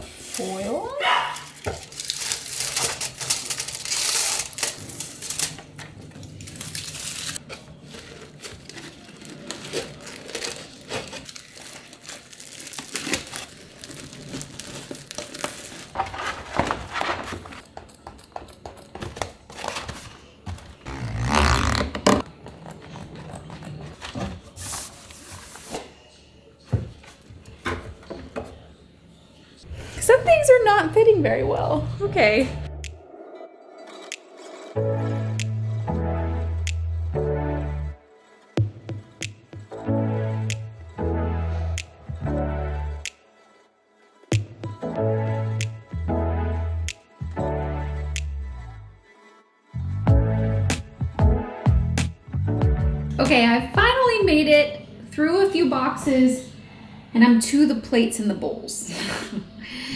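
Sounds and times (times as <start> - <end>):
foil and plastic crinkling: 1.3 - 17.6.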